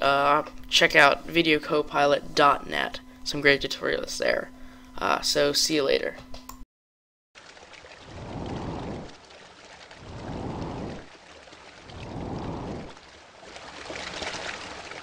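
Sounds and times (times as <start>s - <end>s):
hissing water splash: 7.4s - 15.0s
water lapping: 7.4s - 15.0s.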